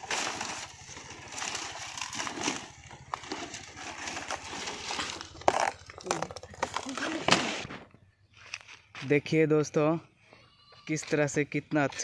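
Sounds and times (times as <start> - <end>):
dry palm leaves rustling and tearing: 0.0 - 7.8.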